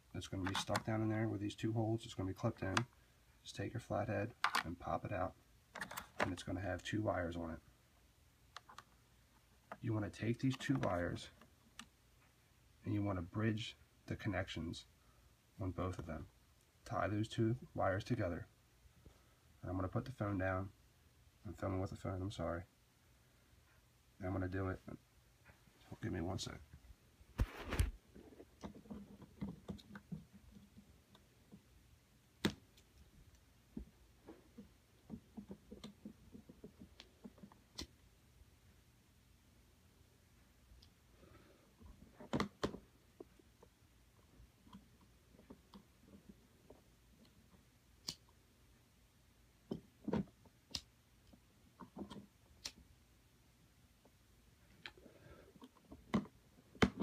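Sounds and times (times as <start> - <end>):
clicks and taps on plastic parts: 4.3 - 4.7, 42.2 - 43.4, 55.6 - 57.0.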